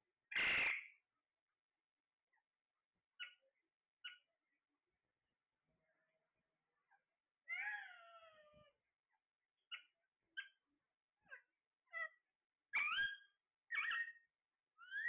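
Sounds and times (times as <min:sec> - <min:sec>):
parrot squawks: 0:00.3 - 0:00.9
parrots calling and chirping: 0:12.8 - 0:15.0.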